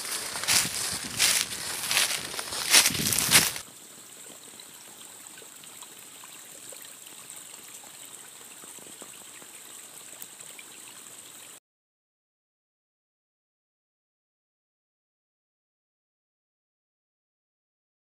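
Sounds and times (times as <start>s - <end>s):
footsteps crunching in dry leaves: 0.0s - 3.6s
faint trickle of a spring: 3.8s - 11.6s.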